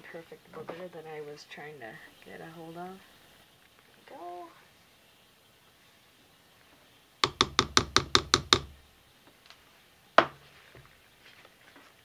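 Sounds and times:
blender knocking on pot: 7.2s - 8.7s.

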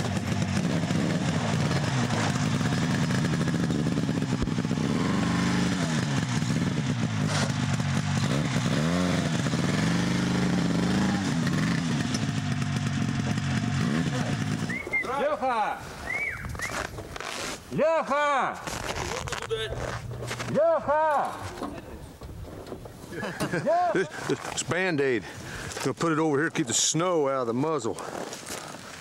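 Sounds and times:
snowmobile engine revving: 0.0s - 21.5s.

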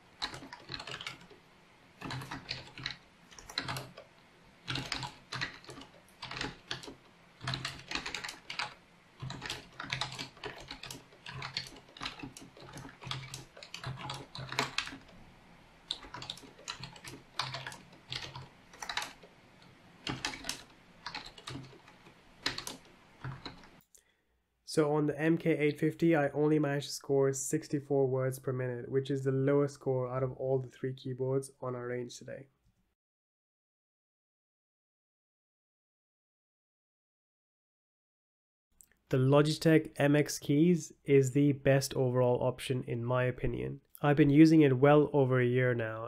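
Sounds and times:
keyboard typing clicks: 4.7s - 15.1s.

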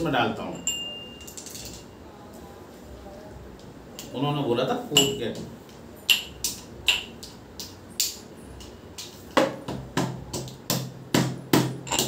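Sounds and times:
metal pestle pounding in mortar: 9.4s - 12.0s.

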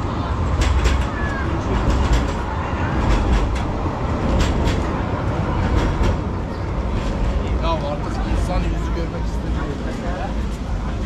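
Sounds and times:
wheels clicking over rails: 0.0s - 7.6s
rail vehicle rumbling past: 0.0s - 11.0s.

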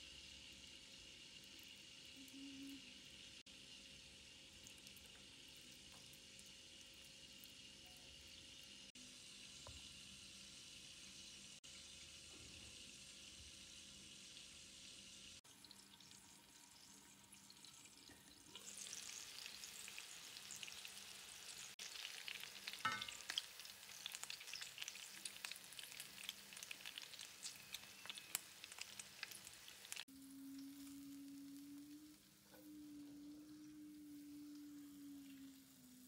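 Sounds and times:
food sizzling in a pan: 0.0s - 36.0s.

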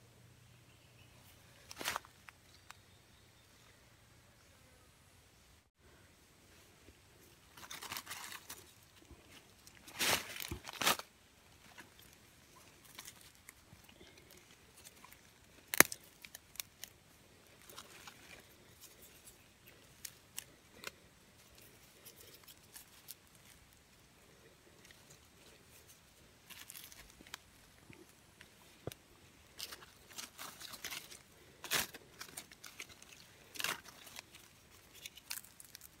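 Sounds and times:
twigs ticking: 7.4s - 36.0s
dry leaves rustling and crunching: 7.5s - 23.8s, 24.9s - 27.6s, 28.7s - 36.0s.

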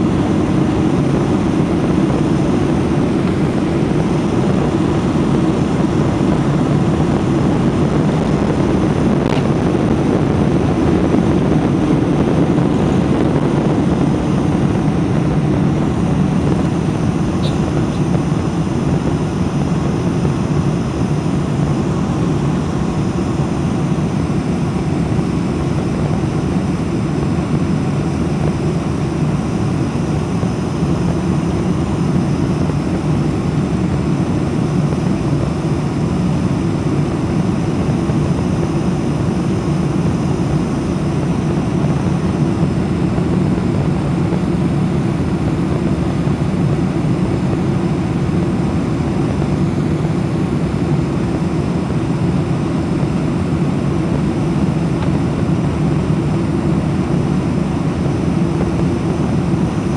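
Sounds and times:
jet engines and airflow rumble: 0.0s - 59.9s.

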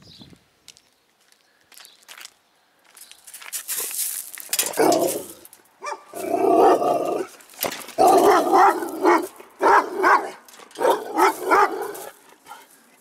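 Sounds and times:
guard dog barking: 4.6s - 7.3s, 8.0s - 12.6s.

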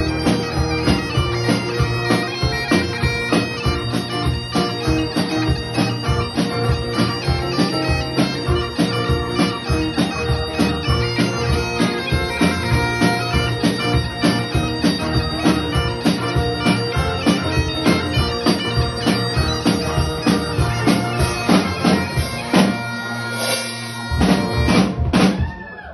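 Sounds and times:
steady beat: 0.0s - 25.6s
stage keyboard: 0.0s - 25.9s.

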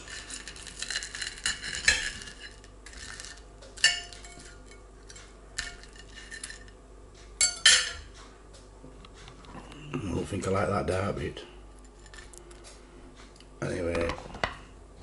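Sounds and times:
knife and fork scraping a plate: 0.0s - 6.8s.

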